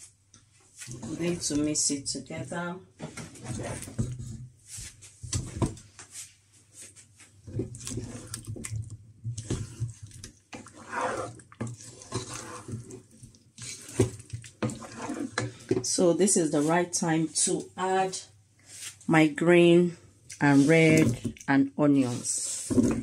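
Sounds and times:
spoon stirring thick gravy: 0.8 - 2.1, 3.1 - 4.4, 7.4 - 17.7.

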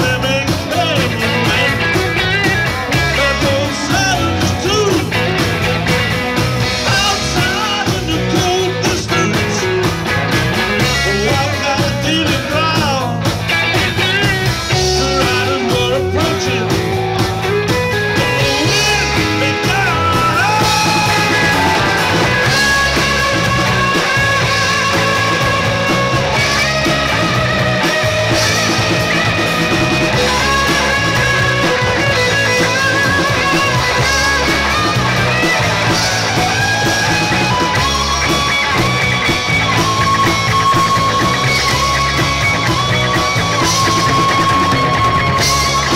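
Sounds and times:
live rock band playing: 0.0 - 45.9.

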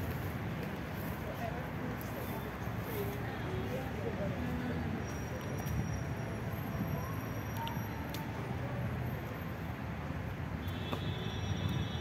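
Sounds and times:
traffic hum: 0.0 - 12.0
faint indistinct voices: 1.0 - 9.7.

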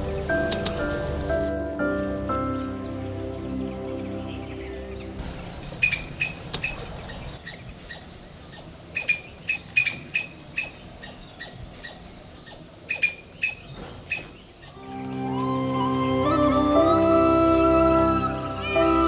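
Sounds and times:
insects droning: 0.0 - 19.0
animal chirping calls: 5.7 - 14.8.

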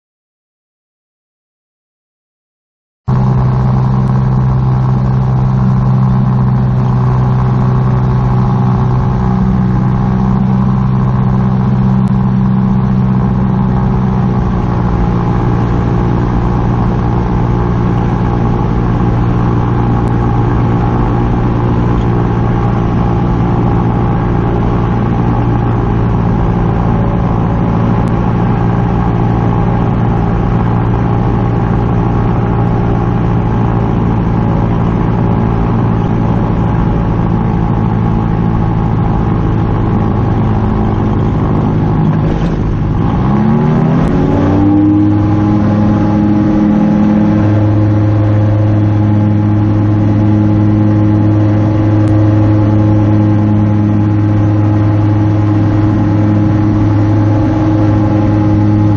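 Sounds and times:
aircraft engine and propeller drone: 3.1 - 58.9
rush of air on microphone: 40.5 - 45.9.

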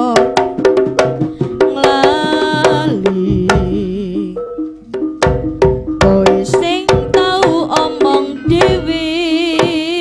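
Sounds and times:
held melody line: 0.0 - 10.0
kendang drum strokes: 4.9 - 10.0.

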